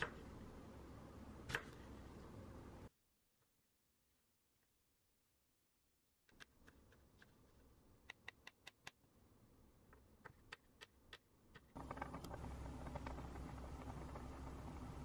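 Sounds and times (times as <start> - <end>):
pot boiling and bubbling: 11.7 - 15.0.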